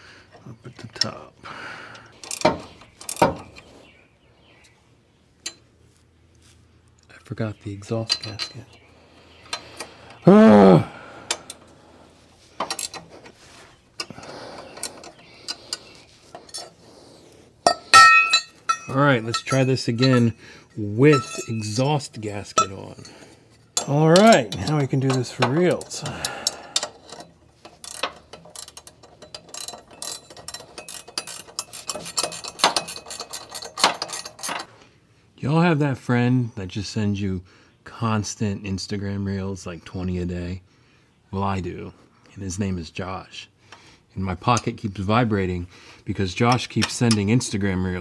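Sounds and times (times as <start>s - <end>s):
metal clinking and scraping: 2.2s - 3.8s, 5.4s - 10.0s, 11.4s - 34.8s, 46.2s - 48.0s.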